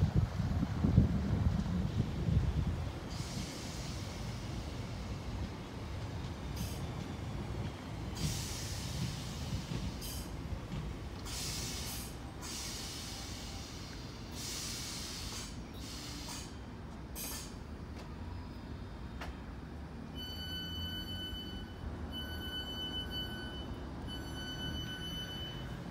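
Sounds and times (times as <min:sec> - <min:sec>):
train wheels rumbling on rails: 0:00.0 - 0:25.9
short bursts of hiss: 0:11.2 - 0:16.6.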